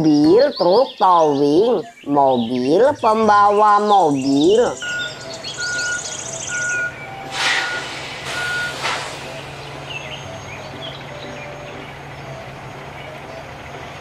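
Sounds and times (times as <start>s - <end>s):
birds chirping faintly: 0.0s - 7.8s, 8.4s - 14.0s
truck engine droning: 2.8s - 14.0s
truck reversing alarm beeps: 4.4s - 14.0s
short bursts of hiss: 7.3s - 9.8s.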